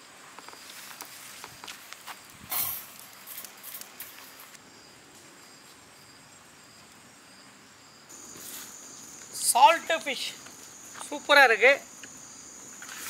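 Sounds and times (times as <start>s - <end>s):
insects chirping: 0.0s - 13.0s.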